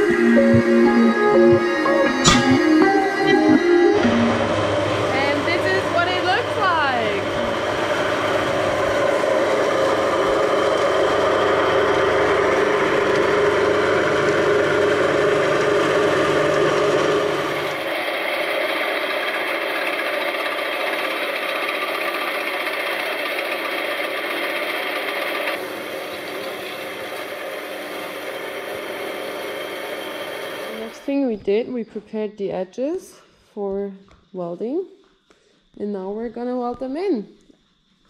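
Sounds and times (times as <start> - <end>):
drill press boring through steel: 7.2 - 31.0.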